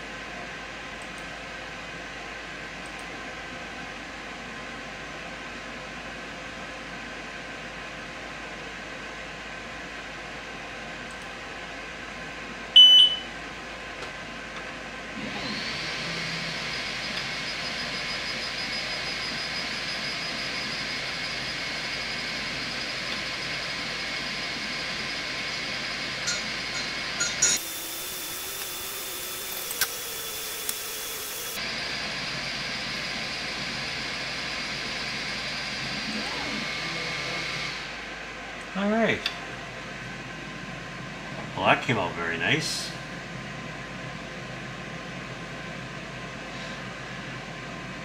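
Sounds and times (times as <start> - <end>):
fans whirring: 0.0 - 48.0
laser engraver beep: 12.8 - 13.3, 17.0 - 23.0, 26.2 - 31.6
faint high whine: 15.4 - 39.2.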